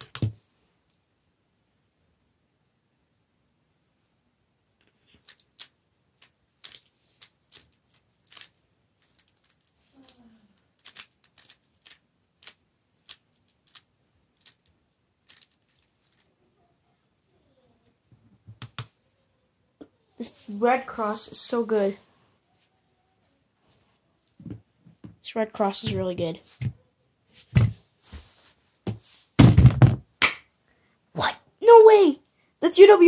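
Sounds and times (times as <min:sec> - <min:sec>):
puzzle cube clicking: 0:05.1 - 0:10.2, 0:10.8 - 0:16.2.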